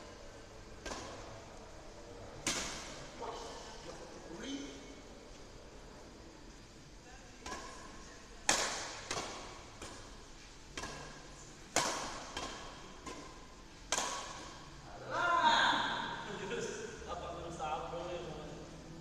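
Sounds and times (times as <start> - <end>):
badminton racquets smacking shuttlecock: 0.7 - 1.7, 2.4 - 3.2, 7.4 - 14.8.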